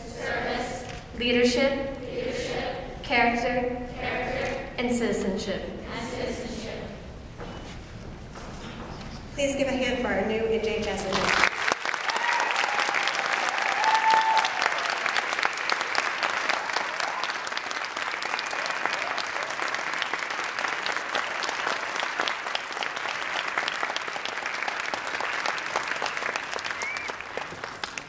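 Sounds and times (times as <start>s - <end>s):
audience applauding: 11.1s - 28.0s.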